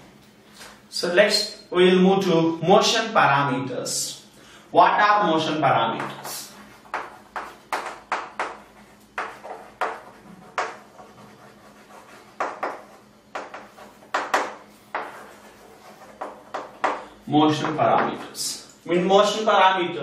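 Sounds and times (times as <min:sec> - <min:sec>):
chalk tapping and scraping: 0:05.9 - 0:18.6.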